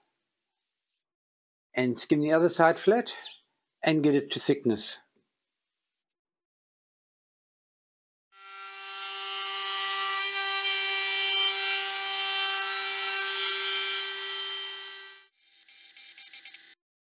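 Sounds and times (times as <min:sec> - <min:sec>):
router spindle whine: 0:08.4 - 0:16.8.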